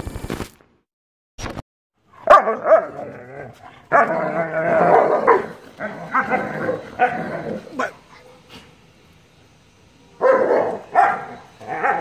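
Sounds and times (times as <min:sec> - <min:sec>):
dogs barking and yipping: 0:02.1 - 0:08.5, 0:10.2 - 0:12.0
dog drawn-out wavering cry: 0:10.2 - 0:12.0.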